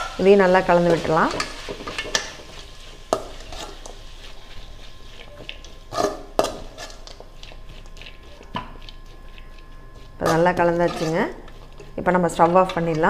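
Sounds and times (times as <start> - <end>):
metal spatula scraping a pan: 0.0 - 7.2, 10.2 - 13.0.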